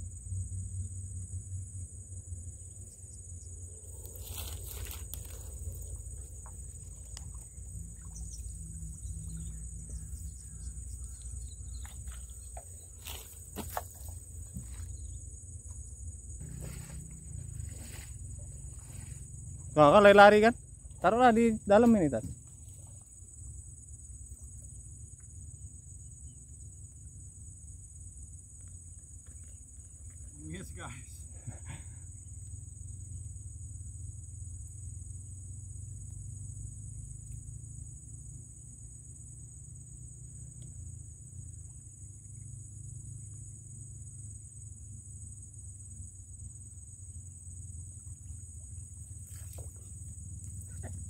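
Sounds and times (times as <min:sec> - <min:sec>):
crickets chirping: 0:00.0 - 0:51.0
high insect chorus: 0:00.0 - 0:51.0
low constant rumble: 0:00.0 - 0:51.0
low rumble: 0:14.2 - 0:19.8.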